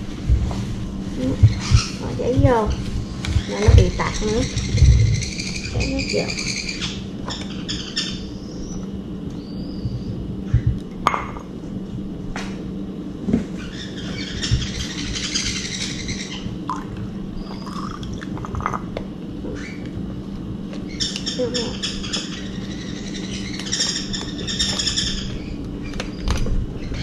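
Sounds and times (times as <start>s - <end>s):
birds chirping: 1.0s - 10.8s, 13.5s - 18.2s, 19.4s - 20.0s, 20.8s - 27.0s
cup and dish knocks and clinks: 11.1s - 11.5s.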